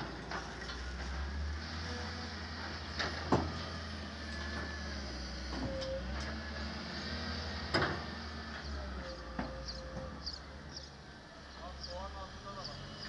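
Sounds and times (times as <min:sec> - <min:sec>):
diesel engine running: 0:00.0 - 0:13.0.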